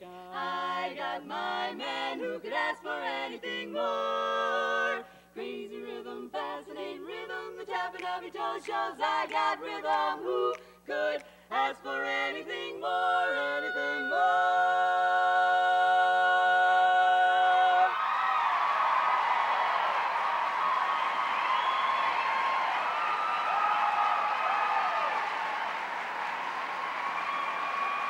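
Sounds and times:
women singing a cappella harmony: 0.0 - 17.9.

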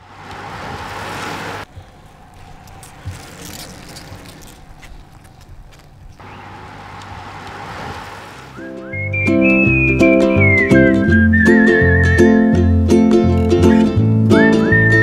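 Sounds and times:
passing traffic rushing: 0.0 - 15.0.

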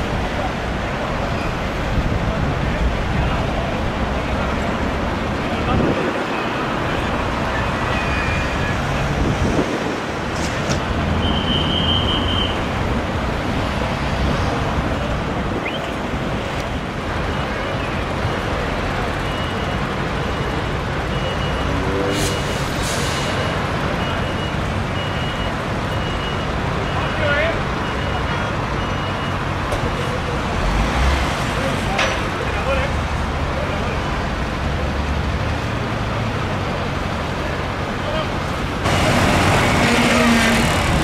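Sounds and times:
motorway traffic: 0.0 - 41.0
short beeps: 24.0 - 29.4.

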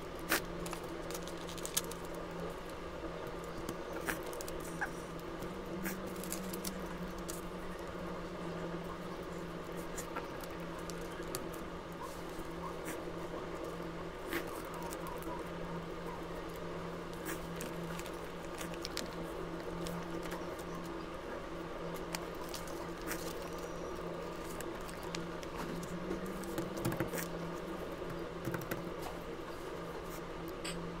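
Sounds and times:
steady low hum: 0.0 - 31.0
paper rustling and tapping: 24.5 - 27.3.

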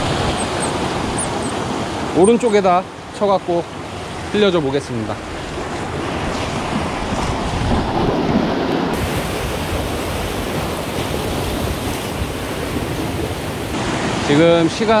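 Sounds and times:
surf washing over rocks: 0.0 - 15.0.

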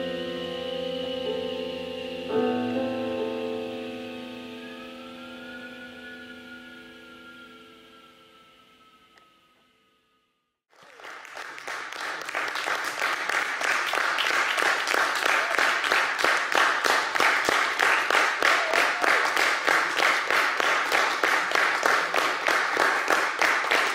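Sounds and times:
audience applauding: 10.7 - 23.9.

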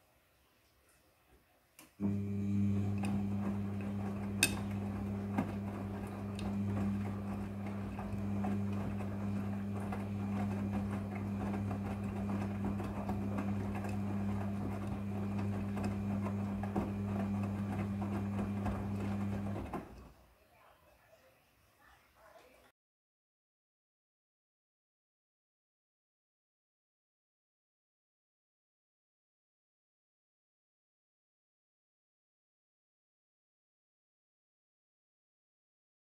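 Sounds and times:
washing machine motor hum: 2.0 - 20.2.

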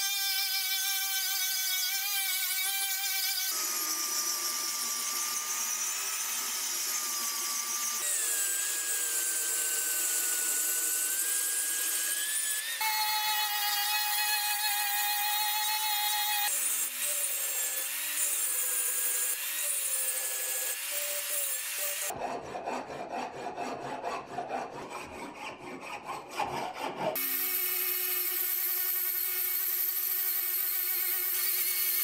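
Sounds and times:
angle grinder grinding steel: 0.0 - 22.6, 26.7 - 32.0
hand file rasping metal: 11.1 - 32.0.

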